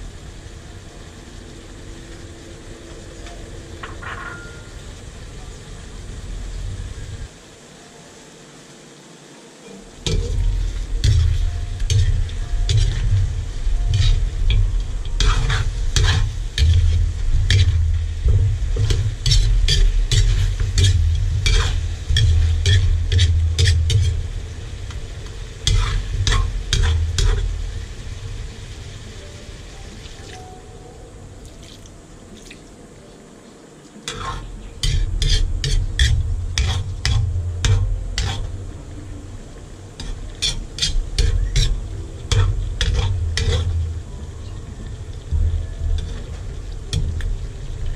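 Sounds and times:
low rumble: 0.0s - 7.4s, 9.9s - 30.0s, 34.0s - 47.9s
oil sizzling: 0.0s - 33.1s, 33.8s - 47.9s
metal ladle scraping wok: 10.0s - 27.8s, 34.0s - 38.7s, 40.0s - 44.1s.

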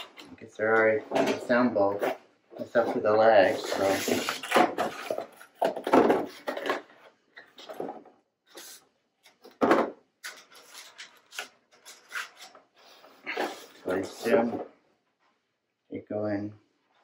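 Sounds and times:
cardboard rubbing and scraping: 1.9s - 6.8s.

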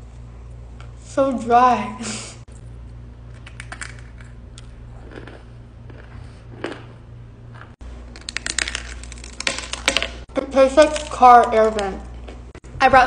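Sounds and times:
steady low hum: 0.0s - 13.0s
chalk crunching when chewed: 4.5s - 6.9s.

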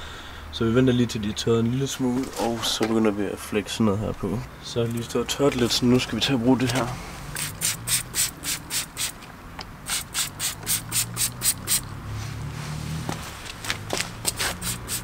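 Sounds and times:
trigger spray bottle hissing: 7.4s - 9.2s, 9.9s - 11.9s, 14.3s - 15.0s.

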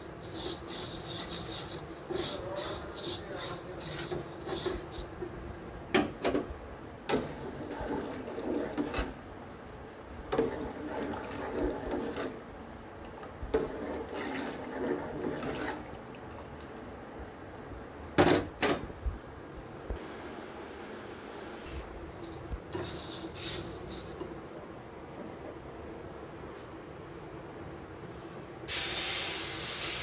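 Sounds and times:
milk sloshing in saucepan: 0.0s - 5.2s, 7.1s - 9.2s, 10.3s - 12.4s, 13.5s - 16.7s.

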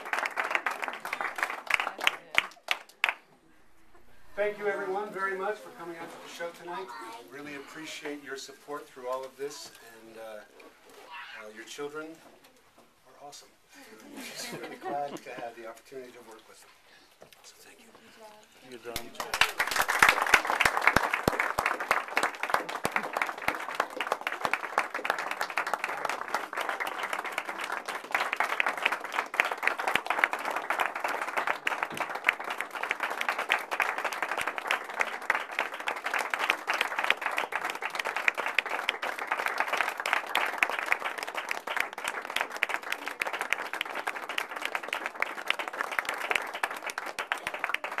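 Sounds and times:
audience applauding: 0.0s - 3.2s, 18.9s - 48.0s.

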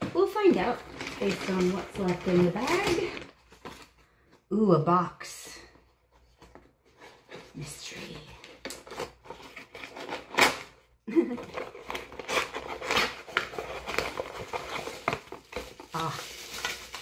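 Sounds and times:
cardboard and packaging crinkling: 0.0s - 4.5s, 5.6s - 17.0s
cardboard ripping: 0.1s - 3.9s, 7.2s - 17.0s.

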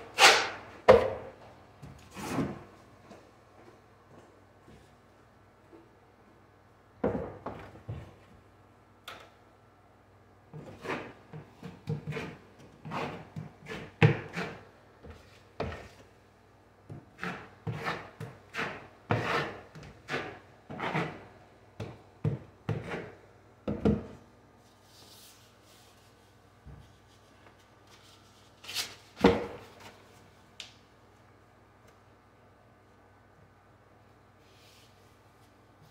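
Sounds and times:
drywall knife scraping bucket: 0.1s - 0.6s, 10.6s - 14.7s, 17.1s - 21.3s
knife smearing mud onto drywall: 10.6s - 15.9s, 17.0s - 21.3s, 22.3s - 23.2s.

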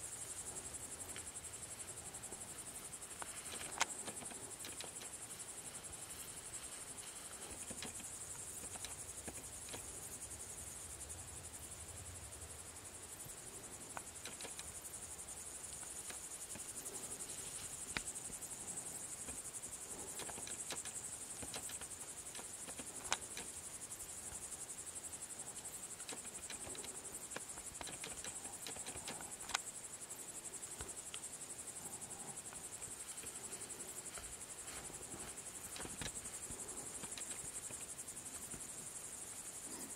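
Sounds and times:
crickets chirping: 0.0s - 39.9s
sharp clicks: 3.2s - 5.1s, 7.4s - 9.9s, 13.9s - 14.8s, 20.1s - 23.6s, 26.0s - 29.6s, 35.6s - 38.6s.

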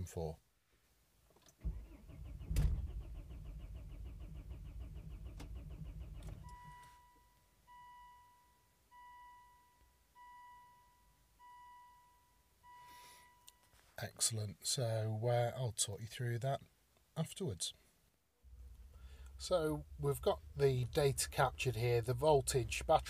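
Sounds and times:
diesel engine cranking: 1.6s - 6.6s.

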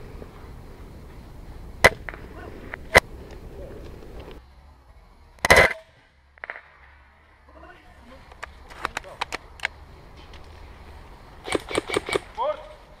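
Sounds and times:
airsoft gun single shots: 1.8s - 2.2s, 5.4s - 6.8s, 11.4s - 12.4s
rattle of rapid shots: 11.4s - 12.4s.

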